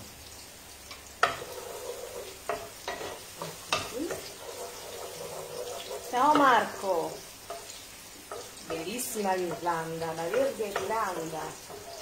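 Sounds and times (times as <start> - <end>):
onion and garlic sizzling in oil: 0.0 - 12.0
wooden spoon knocking against pan: 10.3 - 11.9.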